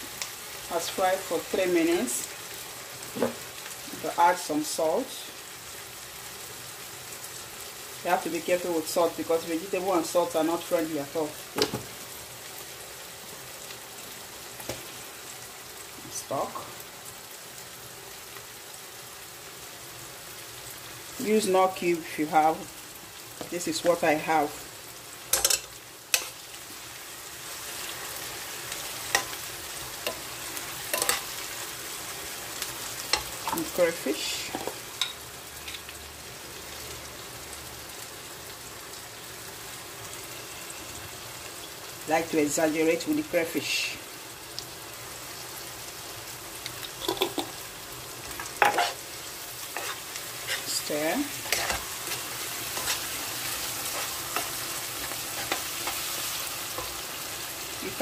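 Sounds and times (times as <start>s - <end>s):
onions and tomatoes sizzling in pan: 0.0s - 58.0s
metal spoon clinking against pan: 25.3s - 26.3s, 30.9s - 31.3s, 46.7s - 47.5s
spoon scraping a pan: 25.3s - 26.4s, 27.7s - 31.4s, 32.9s - 33.8s, 46.6s - 47.6s, 48.2s - 57.2s.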